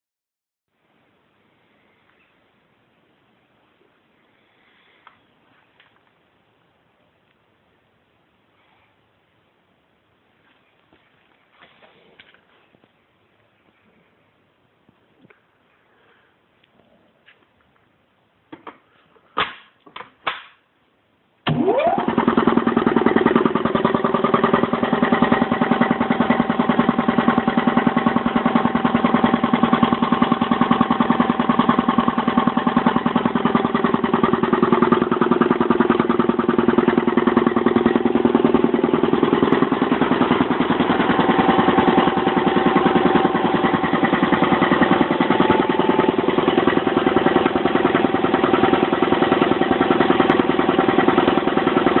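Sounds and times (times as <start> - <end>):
air compressor pulsing: 21.5 - 52.0.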